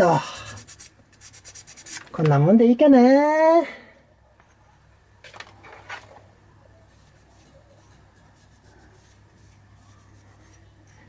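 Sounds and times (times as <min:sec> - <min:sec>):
low steady hum: 0:03.6 - 0:11.0
cloth wiping metal: 0:06.9 - 0:10.9.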